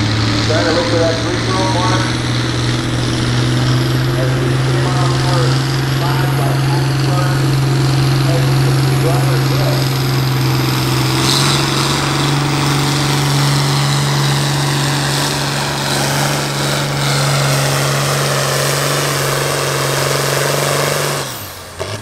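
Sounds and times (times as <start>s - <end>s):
diesel tractor engine under load: 0.0s - 22.0s.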